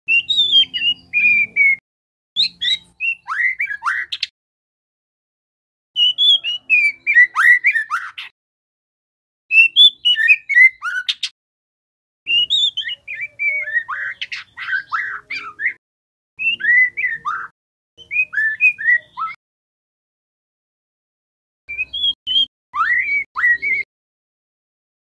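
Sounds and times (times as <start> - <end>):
bird singing whistled phrases: 0.1 - 1.8, 2.4 - 4.3, 6.0 - 8.3, 9.5 - 11.3, 12.3 - 15.8, 16.4 - 19.4, 21.7 - 23.9.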